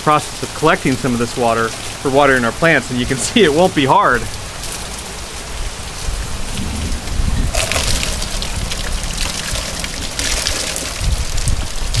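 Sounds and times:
steady rain: 0:00.0 - 0:12.0
water splashing into barrel lid: 0:07.4 - 0:12.0.

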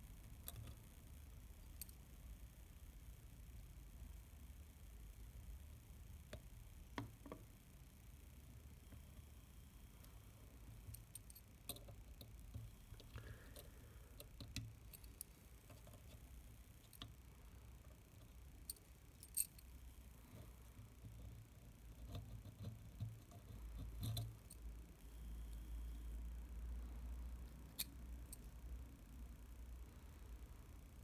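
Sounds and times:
small metal parts clicking: 0:00.4 - 0:00.8, 0:10.9 - 0:17.2, 0:18.1 - 0:19.8, 0:22.0 - 0:24.7, 0:27.5 - 0:28.5.

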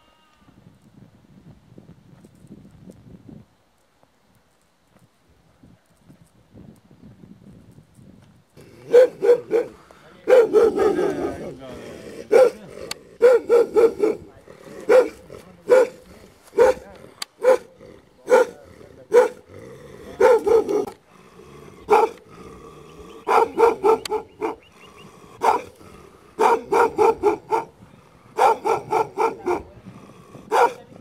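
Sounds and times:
dog barking: 0:08.8 - 0:11.5, 0:12.2 - 0:19.4, 0:20.2 - 0:21.0, 0:21.9 - 0:22.2, 0:23.2 - 0:24.7, 0:25.4 - 0:25.7, 0:26.4 - 0:27.8, 0:28.4 - 0:29.8, 0:30.5 - 0:30.9.

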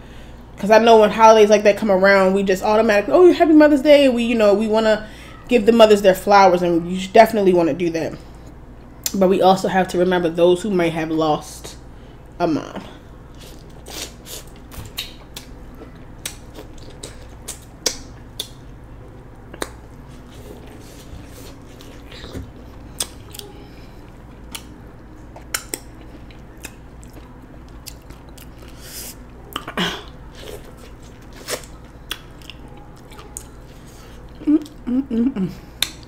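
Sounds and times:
low steady hum: 0:00.0 - 0:36.0
person chewing corn crunches: 0:13.3 - 0:34.9.

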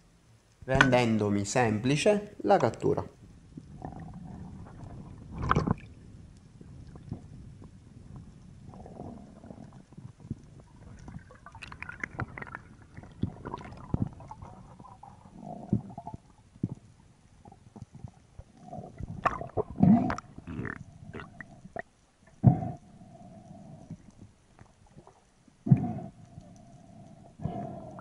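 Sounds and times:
muffled underwater knocks and clicks: 0:00.7 - 0:01.0, 0:15.8 - 0:16.9.

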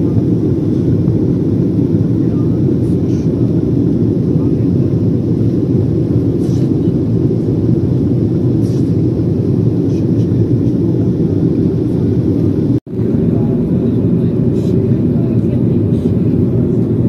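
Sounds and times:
airliner cabin rumble: 0:00.0 - 0:17.0.

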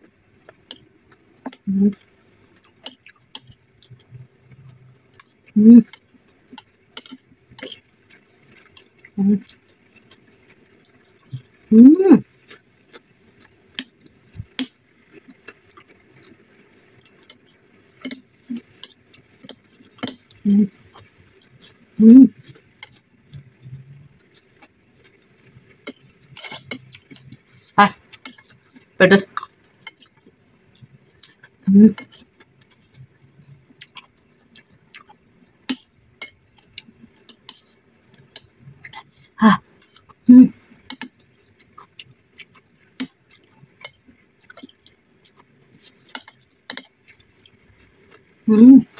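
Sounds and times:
person humming: 0:01.6 - 0:02.0, 0:05.6 - 0:05.9, 0:20.5 - 0:20.7, 0:22.0 - 0:22.3
crisp chewing: 0:12.3 - 0:39.1
cutlery scraping ceramic plate: 0:25.9 - 0:26.8.

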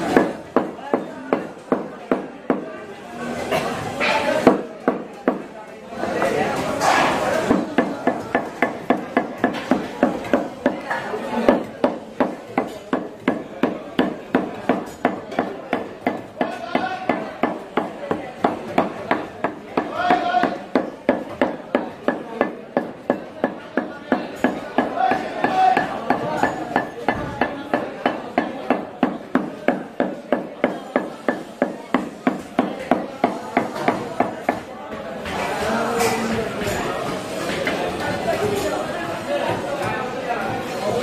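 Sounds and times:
cleaver chopping meat on wood: 0:00.0 - 0:02.6, 0:07.5 - 0:34.7.

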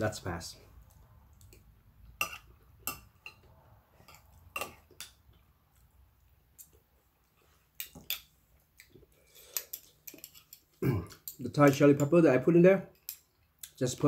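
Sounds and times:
cutlery clinking on dish: 0:02.2 - 0:03.4, 0:09.4 - 0:11.8.

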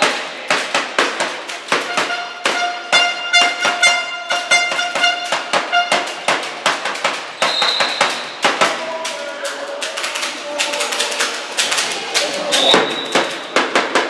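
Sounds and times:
sharp echoing bangs: 0:00.0 - 0:08.9
horn-like tone: 0:01.9 - 0:06.2
referee's whistle: 0:07.4 - 0:08.4, 0:12.6 - 0:13.5.

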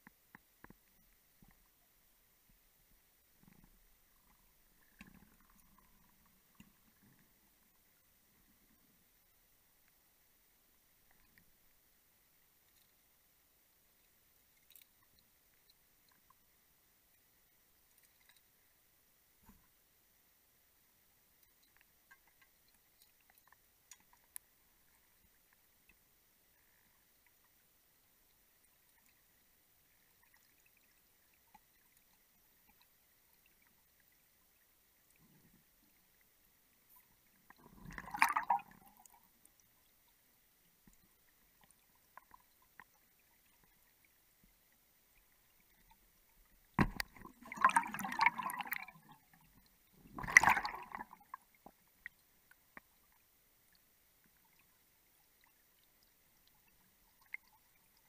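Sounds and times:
underwater bubbling gurgles: 0:03.4 - 0:09.0, 0:28.7 - 0:40.2, 0:41.0 - 0:53.8.

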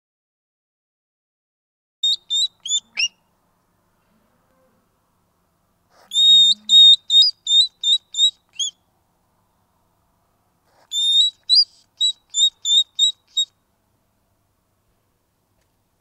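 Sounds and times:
hedgehog piping whistled calls: 0:02.0 - 0:03.3, 0:06.0 - 0:08.8, 0:10.8 - 0:13.6.

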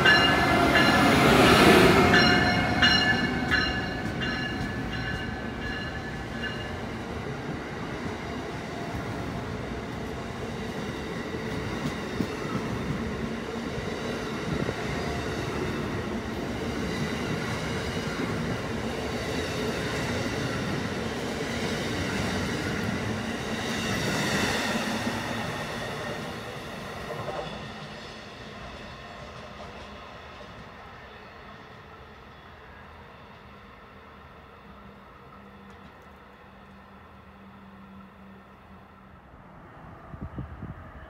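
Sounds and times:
train wheels rumbling on rails: 0:00.0 - 0:32.2.

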